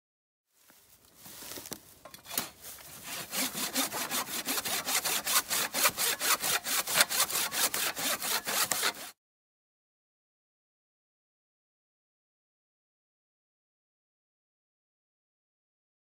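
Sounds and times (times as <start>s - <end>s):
hand saw cutting log: 2.2s - 9.2s.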